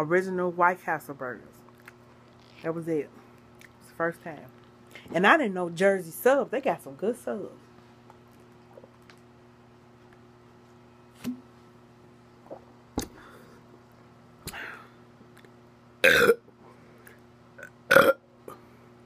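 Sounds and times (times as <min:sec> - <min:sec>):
woman burping loudly: 0:16.0 - 0:16.4, 0:17.6 - 0:18.2.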